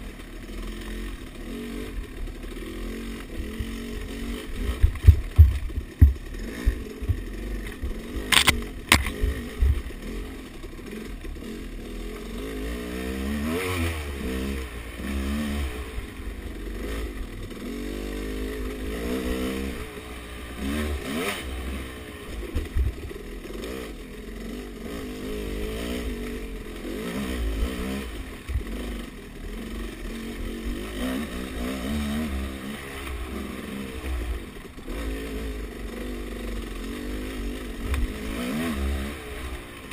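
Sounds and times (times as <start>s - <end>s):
dirt bike engine revving: 0.0s - 39.9s
sharp clattering knocks: 4.7s - 9.8s.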